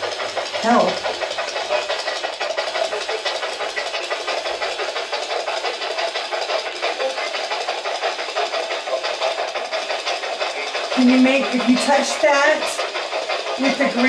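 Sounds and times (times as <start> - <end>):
choppy radio static: 0.6 - 7.5, 10.1 - 14.0.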